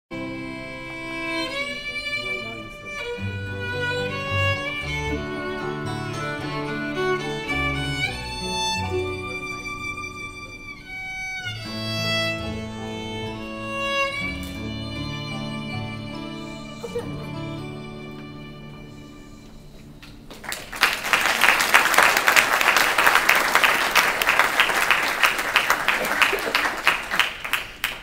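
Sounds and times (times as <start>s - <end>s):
fiddle bowed melody: 0.1s - 20.3s.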